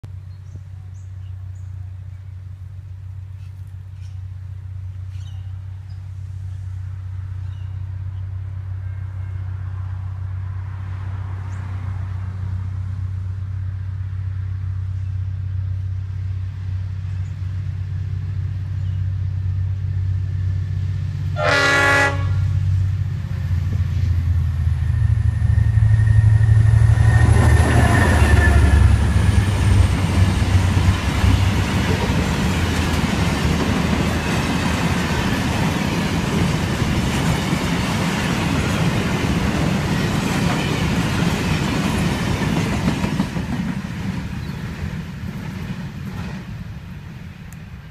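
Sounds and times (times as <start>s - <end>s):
diesel locomotive engine drone: 0.0s - 47.9s
train horn blast: 21.3s - 22.8s, 26.2s - 29.8s
wagons rumbling by: 22.9s - 47.2s.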